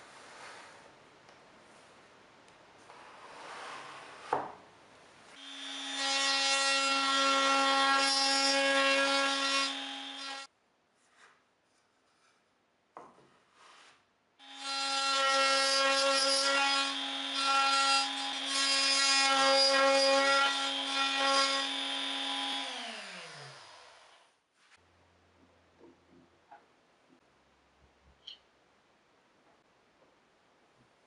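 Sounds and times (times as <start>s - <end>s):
router whining while cutting: 20.6s - 24.1s
router winding down: 22.0s - 24.1s.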